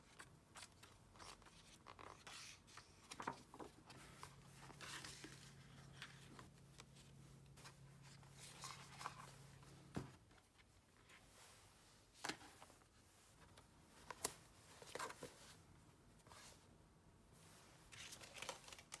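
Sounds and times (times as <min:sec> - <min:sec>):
paper pages rustling: 0:00.0 - 0:11.3, 0:13.4 - 0:15.6, 0:17.9 - 0:19.0
low steady hum: 0:00.0 - 0:18.8.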